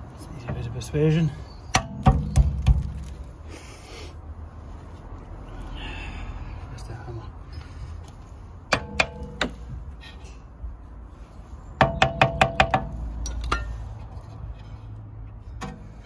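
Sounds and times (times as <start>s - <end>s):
hammer knocking on metal: 11.8s - 12.9s.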